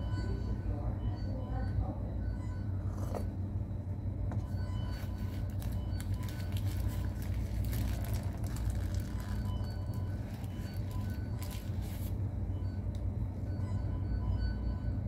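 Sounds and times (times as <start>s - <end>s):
low background rumble: 0.0s - 15.0s
paper wrapper crinkling: 5.1s - 12.1s.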